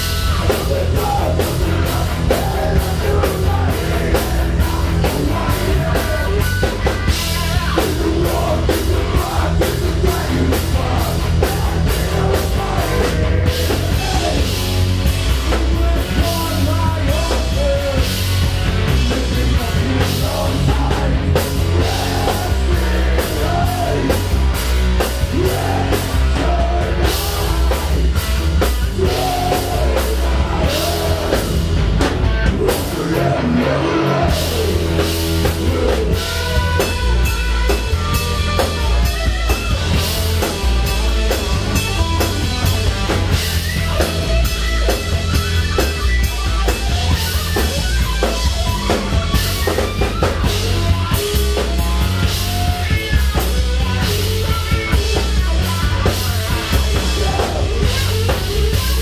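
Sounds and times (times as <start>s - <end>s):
bass guitar: 0.0s - 59.0s
drum kit: 0.0s - 59.0s
electric guitar: 0.0s - 59.0s
person singing: 0.3s - 14.7s, 18.9s - 24.4s, 25.0s - 31.8s, 32.4s - 37.0s, 55.0s - 59.0s.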